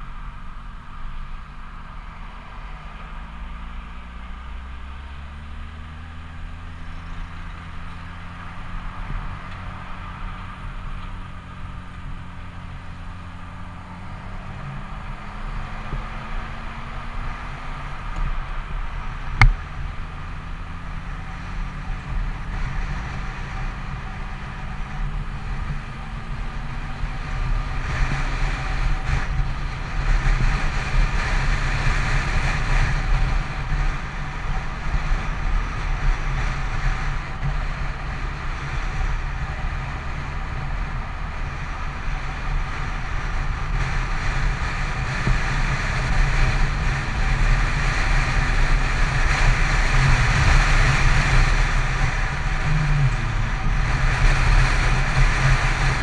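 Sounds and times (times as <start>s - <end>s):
motorcycle engine droning: 0.0s - 56.0s
road rush: 0.0s - 56.0s
wind rush: 42.1s - 56.0s.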